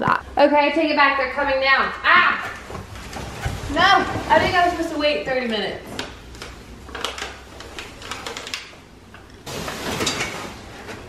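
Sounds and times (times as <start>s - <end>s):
paper blinds crinkling and rustling: 2.6s - 8.8s, 9.4s - 11.0s.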